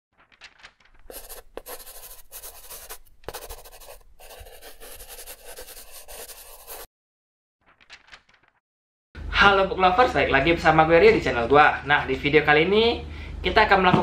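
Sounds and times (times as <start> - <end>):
pen scratching on paper: 1.0 - 6.9.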